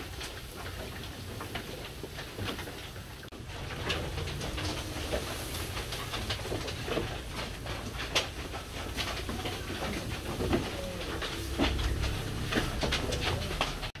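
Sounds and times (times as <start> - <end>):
sheep chewing grass: 0.0 - 14.0
low rumble: 3.3 - 14.0.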